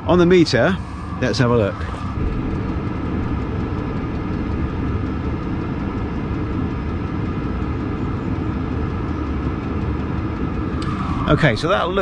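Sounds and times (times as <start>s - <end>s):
diesel heater rumbling: 0.0s - 12.0s
faint steady whine: 0.0s - 12.0s.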